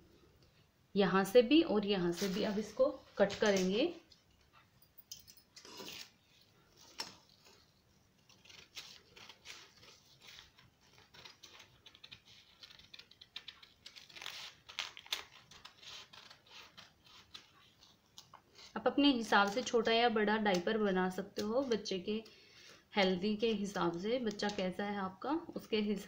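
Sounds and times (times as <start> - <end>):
paper rustling: 2.1 - 3.8, 5.6 - 18.7
scissors snipping paper: 6.8 - 18.4, 23.9 - 24.6.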